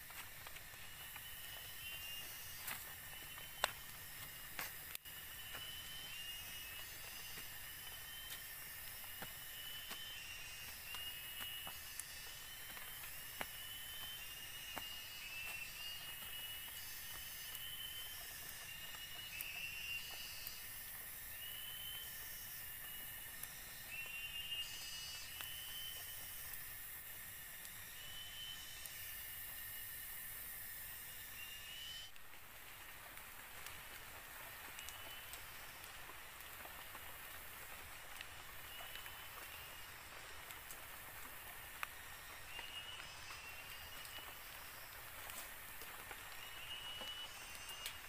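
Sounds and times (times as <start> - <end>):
footsteps on dirt trail: 0.0 - 21.4
insect chorus: 0.0 - 48.0.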